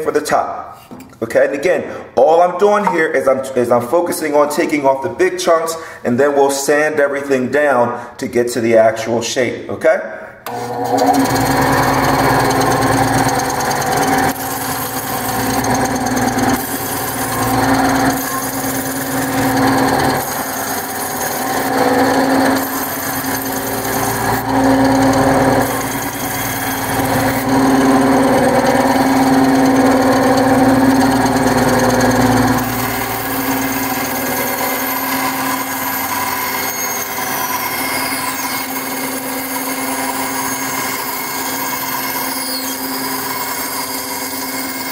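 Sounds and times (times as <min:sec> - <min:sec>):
bandsaw cutting wood: 0:10.4 - 0:44.9.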